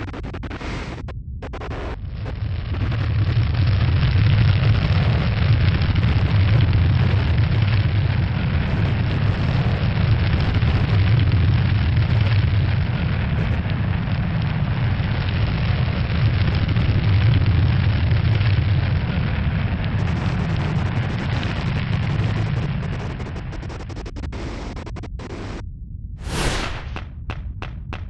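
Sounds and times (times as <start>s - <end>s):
capsule roar with hiss: 26.2s - 27.0s.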